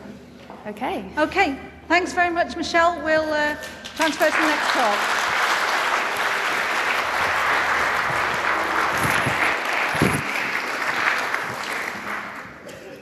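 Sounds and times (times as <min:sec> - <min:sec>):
audience applauding: 0:03.8 - 0:12.7.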